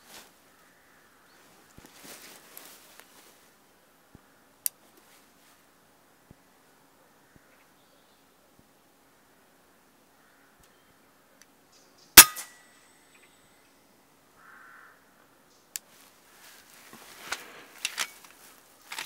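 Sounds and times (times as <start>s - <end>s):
handling rustles: 1.6s - 3.4s, 15.9s - 19.0s
air rifle shot: 12.2s - 12.6s.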